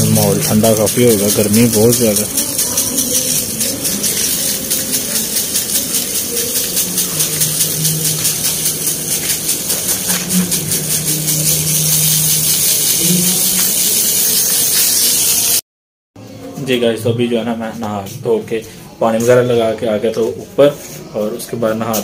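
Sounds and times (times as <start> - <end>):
hose water spraying on pavement: 0.0 - 15.6.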